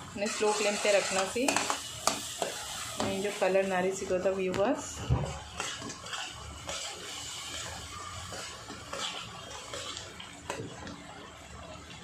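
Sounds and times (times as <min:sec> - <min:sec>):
gravy sizzling: 0:00.0 - 0:12.0
spoon scraping in pan: 0:00.2 - 0:03.4, 0:05.3 - 0:10.7.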